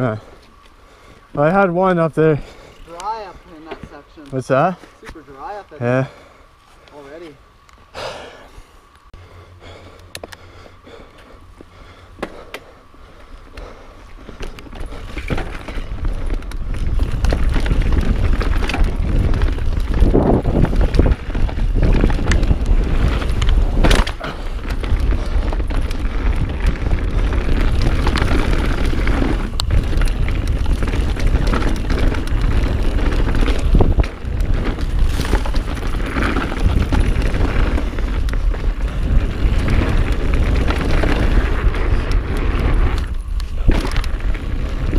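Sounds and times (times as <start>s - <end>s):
bike tyres on dirt: 0.0s - 44.9s
bike knocking and rattling: 2.2s - 5.9s, 10.2s - 44.9s
wind rumble on microphone: 13.1s - 44.9s.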